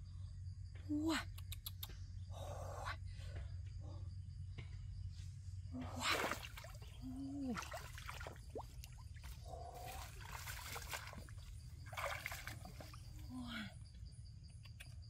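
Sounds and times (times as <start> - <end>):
rustling through wet undergrowth: 6.0 - 13.3.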